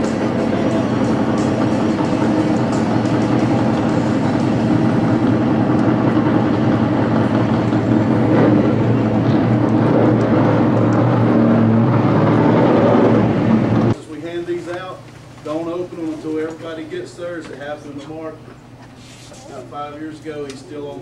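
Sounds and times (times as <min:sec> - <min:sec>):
race car engines droning: 0:00.0 - 0:14.4.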